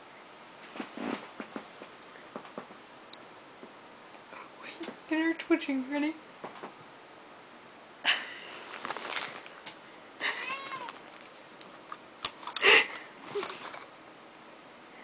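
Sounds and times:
cat meowing: 0:10.2 - 0:11.0.

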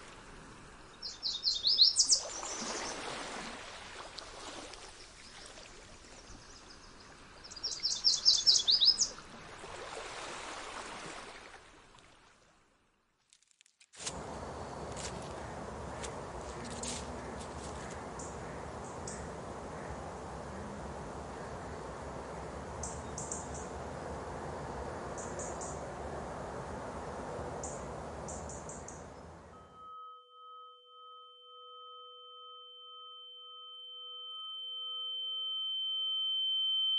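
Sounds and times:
outdoor background hiss: 0:00.0 - 0:11.9, 0:14.0 - 0:29.8
bird trilling song: 0:00.9 - 0:03.0, 0:06.3 - 0:09.2, 0:15.4 - 0:20.0, 0:22.8 - 0:23.7.

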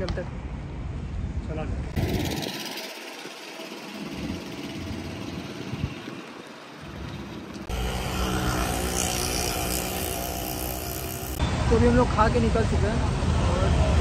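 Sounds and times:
road traffic noise: 0:00.0 - 0:14.0
loud steady noise: 0:07.7 - 0:14.0.

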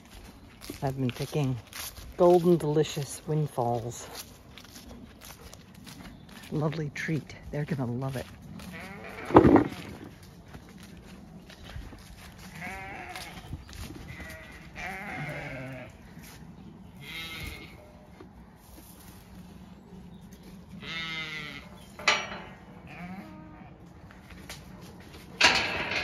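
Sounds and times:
sheep bleating: 0:08.6 - 0:09.9, 0:12.5 - 0:13.5, 0:14.1 - 0:16.0, 0:17.0 - 0:17.8, 0:20.8 - 0:21.8, 0:22.9 - 0:23.8.

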